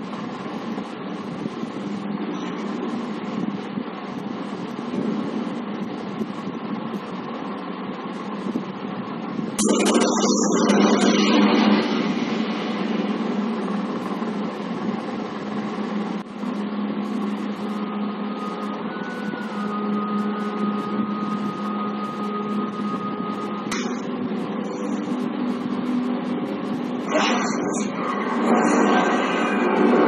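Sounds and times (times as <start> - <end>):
low drone: 9.5 - 30.0
thin high tone: 9.6 - 13.9, 16.4 - 30.0.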